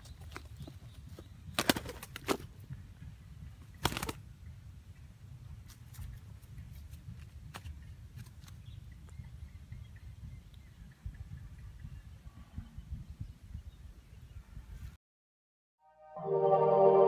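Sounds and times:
low wind rumble: 0:00.0 - 0:15.0
bird wings flapping: 0:00.1 - 0:02.6, 0:03.7 - 0:04.2.

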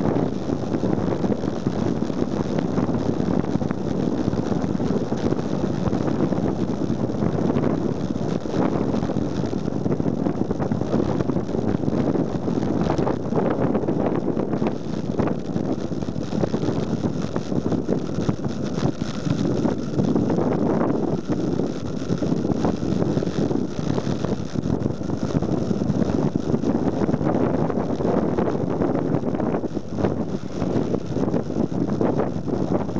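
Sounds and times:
wind buffeting microphone: 0:00.0 - 0:32.9.

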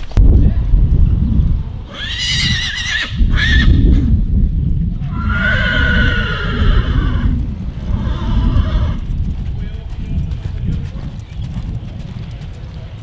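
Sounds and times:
horse whinnying: 0:01.9 - 0:04.1, 0:05.0 - 0:09.0
hoofbeats in sand: 0:03.7 - 0:13.0.

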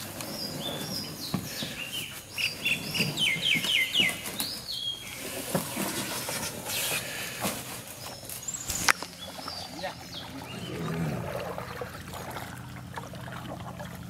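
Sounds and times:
canoe knocking and scraping: 0:00.0 - 0:10.5
bird singing whistled notes: 0:00.4 - 0:05.2.

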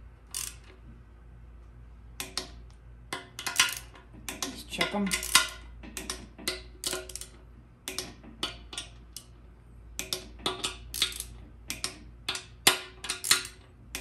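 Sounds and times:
torque wrench clicking: 0:00.3 - 0:00.8, 0:03.2 - 0:09.3, 0:10.0 - 0:14.0.

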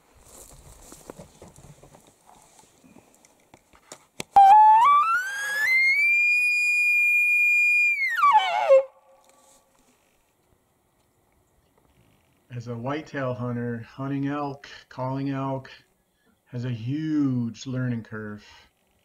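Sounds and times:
faint rustling: 0:00.0 - 0:04.2, 0:09.2 - 0:12.5
elk call whistle: 0:04.4 - 0:09.2.

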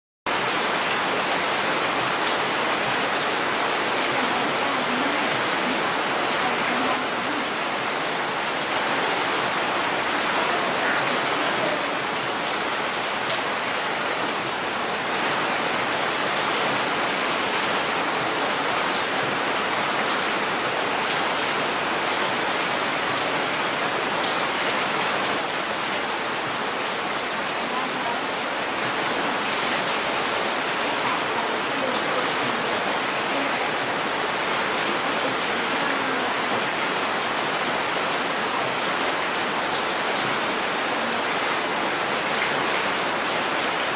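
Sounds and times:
rain falling on leaves: 0:00.3 - 0:43.9.

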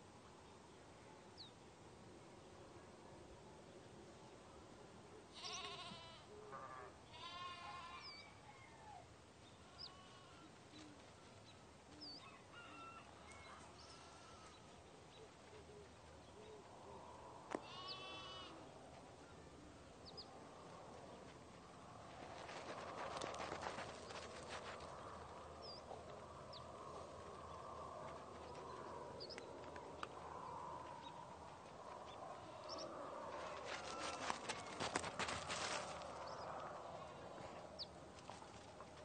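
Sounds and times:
sheep bleating: 0:05.3 - 0:06.3, 0:07.1 - 0:08.2, 0:09.7 - 0:10.5, 0:13.8 - 0:14.6, 0:17.6 - 0:18.6, 0:33.7 - 0:34.8.

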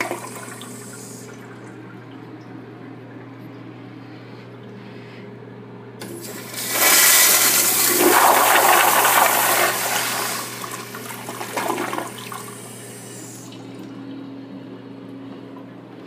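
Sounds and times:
toilet flushing: 0:00.0 - 0:02.3, 0:06.0 - 0:13.9
faint steady hum: 0:00.0 - 0:16.0.

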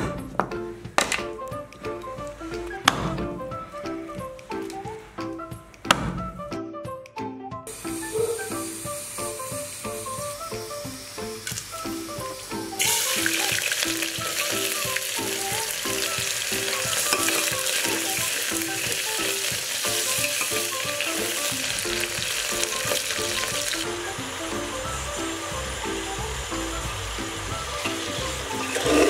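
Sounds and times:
background music: 0:00.0 - 0:29.0
onions and spices sizzling in oil: 0:07.7 - 0:29.0
spoon stirring: 0:16.7 - 0:18.6, 0:19.3 - 0:21.4.

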